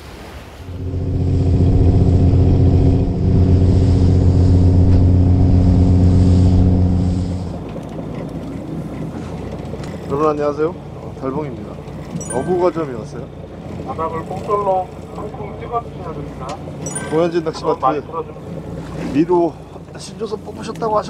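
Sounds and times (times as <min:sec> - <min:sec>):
boat engine droning: 0:00.4 - 0:21.0.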